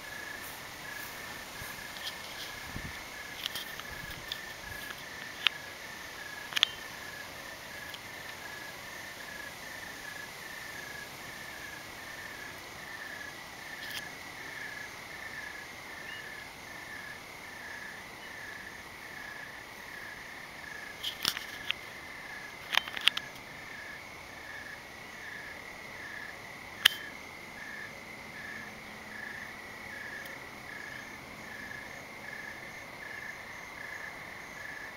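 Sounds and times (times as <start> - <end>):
cricket chirping: 0.0 - 34.9
insect high trill: 0.0 - 34.9.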